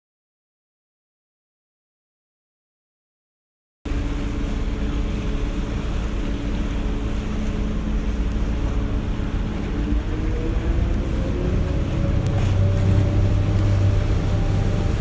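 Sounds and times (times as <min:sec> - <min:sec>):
boat engine drone: 0:03.9 - 0:15.0
water wash: 0:03.9 - 0:15.0.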